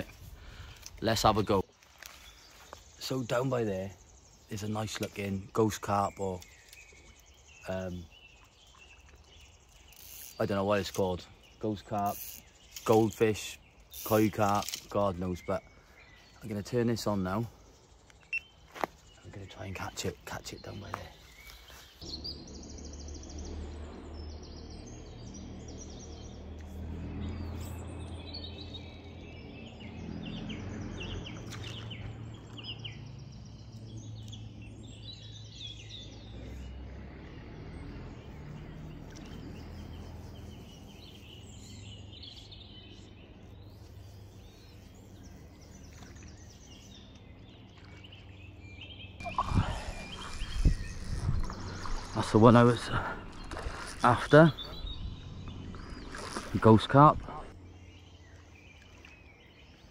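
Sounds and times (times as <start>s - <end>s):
birds singing and calling: 0.0s - 59.9s
low steady rumble: 49.2s - 58.4s.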